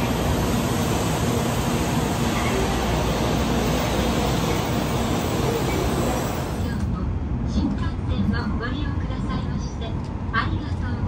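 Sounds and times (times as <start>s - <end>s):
train cars passing: 0.0s - 8.0s.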